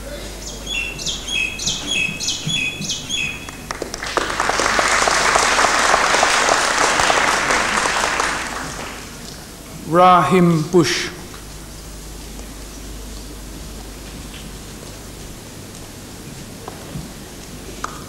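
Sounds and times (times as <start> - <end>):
bird chirping: 0.1 - 3.8
audience applause: 0.7 - 9.5.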